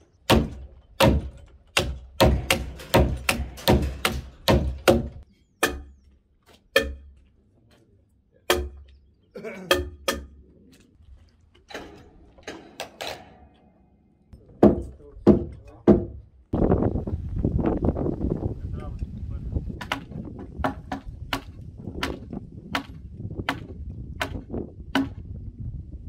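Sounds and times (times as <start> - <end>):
hammer knocking on timber: 0.3 - 5.2, 14.6 - 16.2.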